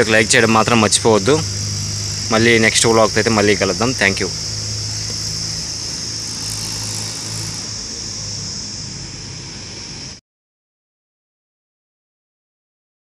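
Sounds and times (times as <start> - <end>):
scooter engine running: 0.0 - 8.5
insects droning: 0.0 - 10.2.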